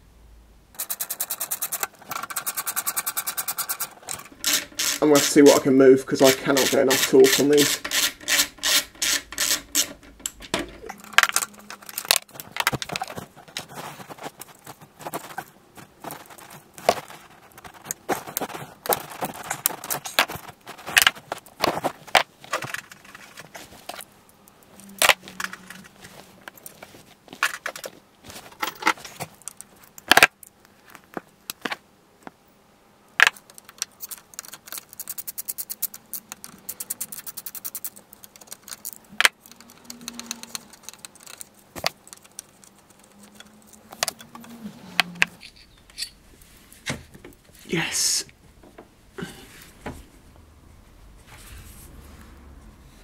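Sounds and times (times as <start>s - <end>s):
socket ratchet clicking: 0.8s - 5.4s, 6.3s - 10.7s, 33.6s - 41.4s
metal hand tools clinking: 45.4s - 46.2s.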